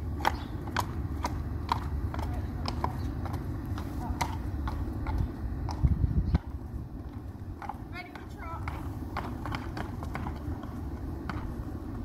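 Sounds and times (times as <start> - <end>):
horse hooves clip-clopping: 0.0 - 12.0
low microphone rumble: 1.9 - 9.2.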